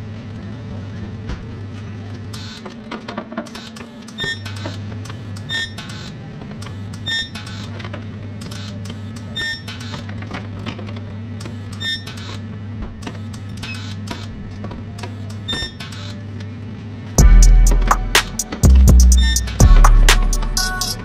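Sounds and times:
steady low hum: 17.2s - 21.0s.

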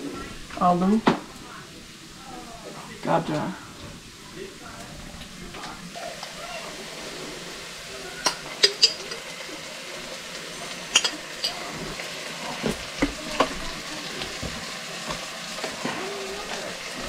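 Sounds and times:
pan sizzling: 0.0s - 17.0s
spoon clinking against jars: 8.6s - 9.2s.

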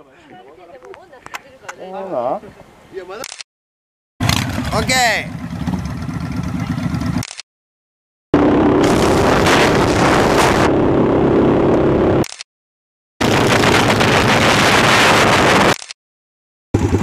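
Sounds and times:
motorcycle engine running: 4.2s - 7.2s, 8.4s - 12.2s, 16.8s - 17.0s
wind rushing over microphone: 8.4s - 12.2s, 13.2s - 15.8s.

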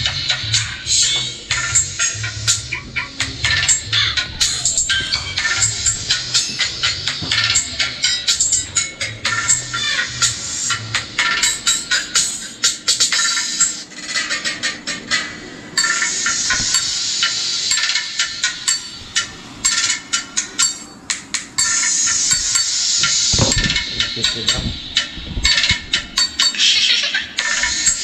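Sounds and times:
treble-only music through tweeter: 0.0s - 28.0s
short low thump: 23.3s - 26.4s.

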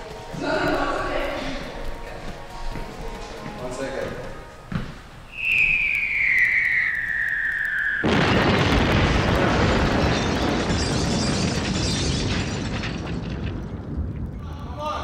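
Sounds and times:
falling bomb whistle: 5.3s - 8.9s
explosion rumbling: 8.0s - 15.0s.

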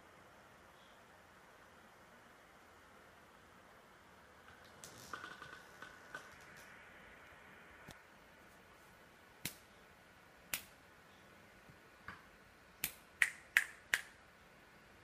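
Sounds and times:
finger snapping: 12.8s - 14.2s.

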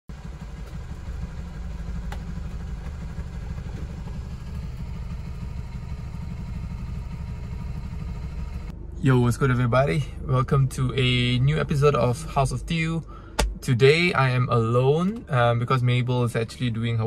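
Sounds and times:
vehicle engines idling: 0.1s - 13.4s.

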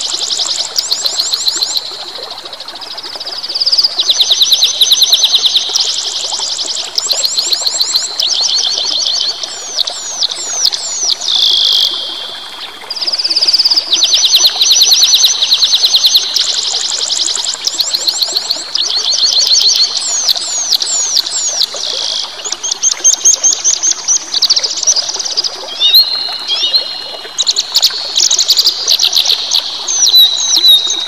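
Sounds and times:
running water: 0.0s - 31.0s
songbird trilling: 25.7s - 27.5s, 28.2s - 31.0s.

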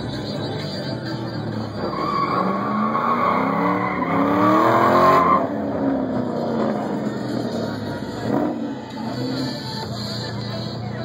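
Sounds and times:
car engine revving: 1.4s - 9.8s
car tyres squealing: 1.5s - 7.6s.

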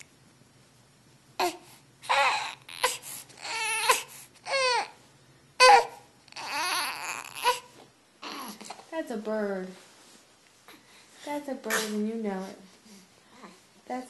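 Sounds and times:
infant cooing and squealing: 1.4s - 5.0s, 5.6s - 8.7s.

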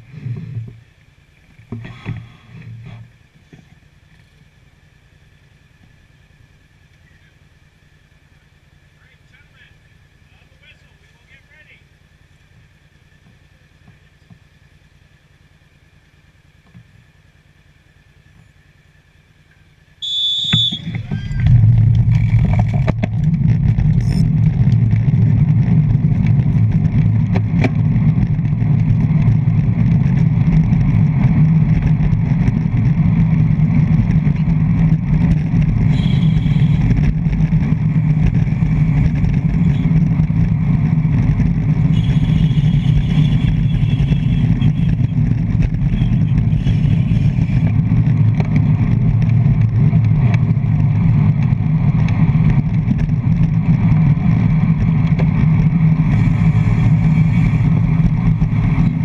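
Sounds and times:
wind rumble on camera: 0.0s - 4.4s, 20.5s - 59.0s
brief high-pitched tone: 20.0s - 21.5s.

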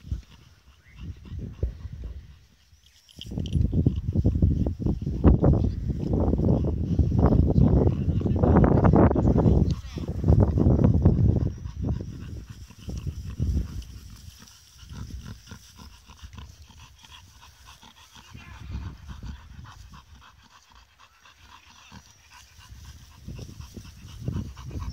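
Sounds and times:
dogs breathing fast: 0.0s - 24.9s
dogs grunting: 6.2s - 24.9s.

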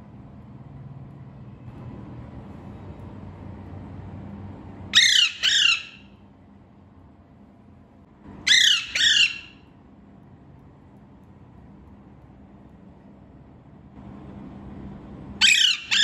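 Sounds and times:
parakeet squawking: 4.9s - 6.2s, 8.4s - 9.7s, 15.4s - 16.0s.

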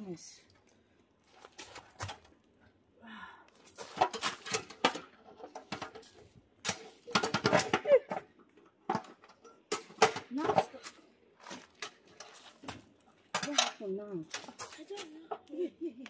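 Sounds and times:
metal grill clinking and rattling: 3.9s - 8.2s, 13.3s - 15.0s.

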